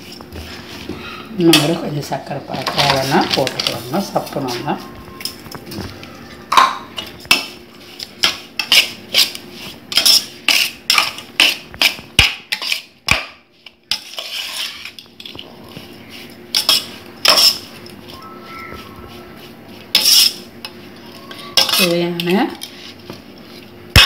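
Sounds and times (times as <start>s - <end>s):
spoon clinking against steel bowl: 21.3s - 22.4s.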